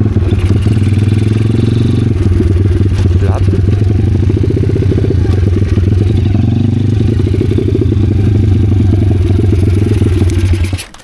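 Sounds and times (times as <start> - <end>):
motorbike engine running: 0.0 - 11.0
person talking: 3.0 - 3.8.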